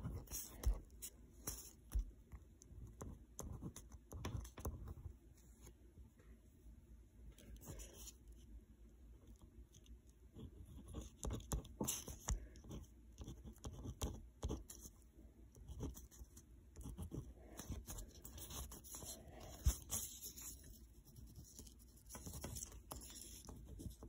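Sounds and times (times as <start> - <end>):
pen scratching on paper: 0.0 - 2.1, 2.8 - 5.1, 10.4 - 14.9, 15.6 - 24.0.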